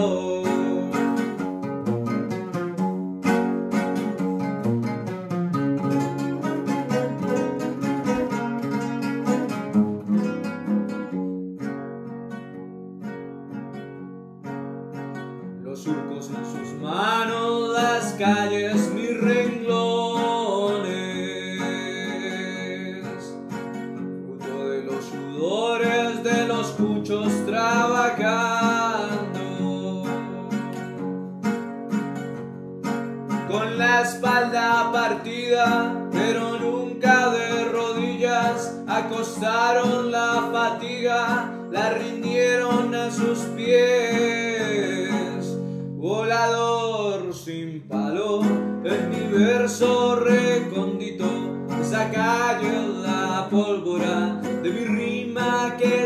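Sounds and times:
man singing: 0.0s - 2.6s, 5.8s - 9.8s, 15.6s - 31.1s, 33.3s - 56.0s
strummed and picked bandola: 0.0s - 56.0s.

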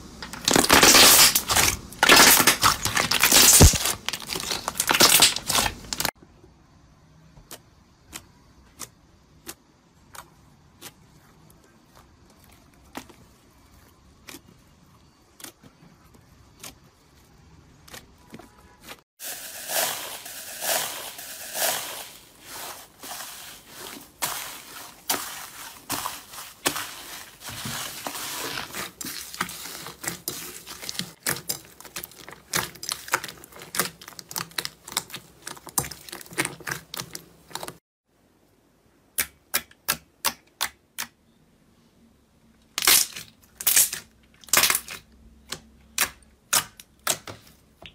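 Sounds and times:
crunchy slime crackling: 0.3s - 6.2s, 19.5s - 37.8s
hands squishing slime: 22.4s - 37.8s.

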